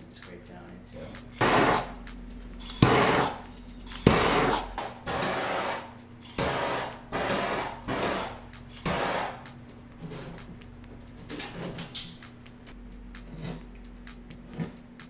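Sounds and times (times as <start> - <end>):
scraper scraping wax: 1.4 - 1.9.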